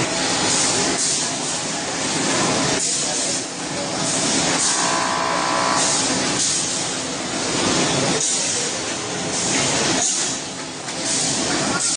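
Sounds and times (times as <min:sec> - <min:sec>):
packaging machines running: 0:00.0 - 0:11.9
steady machine whine: 0:03.8 - 0:09.4.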